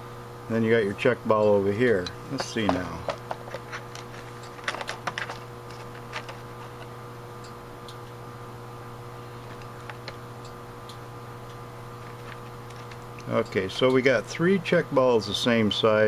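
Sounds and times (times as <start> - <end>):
steady low hum: 0.0 - 16.0
small metal parts clicking: 2.4 - 6.5, 12.0 - 13.4.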